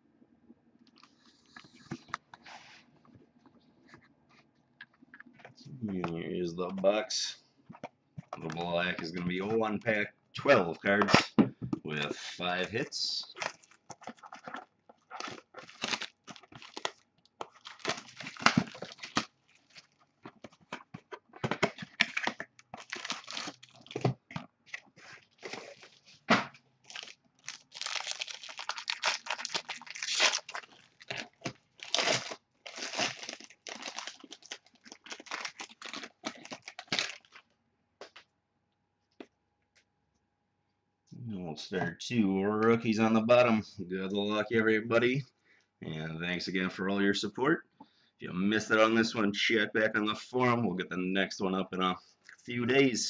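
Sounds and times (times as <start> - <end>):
wrapper crinkling and tearing: 12.6 - 20.8, 21.5 - 24.2, 26.8 - 37.5.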